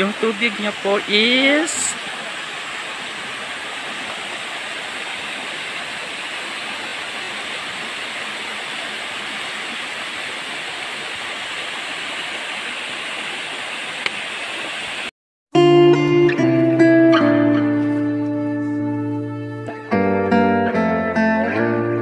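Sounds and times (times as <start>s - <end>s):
small waterfall splashing: 0.0s - 15.1s.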